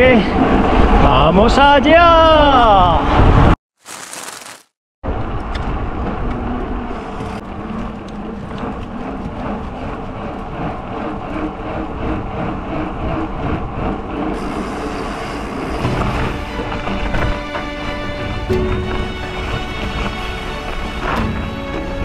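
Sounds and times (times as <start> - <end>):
bicycle tyres rolling on dirt: 3.8 - 4.8.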